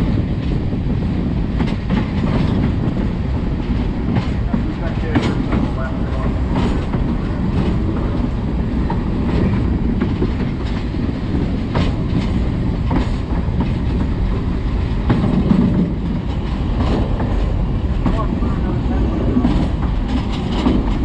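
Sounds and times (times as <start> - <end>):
train wheels rumbling on track: 0.0 - 21.0
wheels clicking over rail joints: 0.2 - 21.0.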